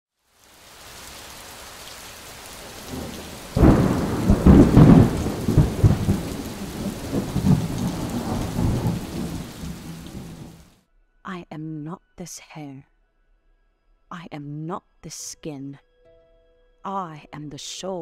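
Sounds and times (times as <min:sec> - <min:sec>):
heavy rain: 0:00.2 - 0:10.8
thunder clap and rumble: 0:02.6 - 0:10.7.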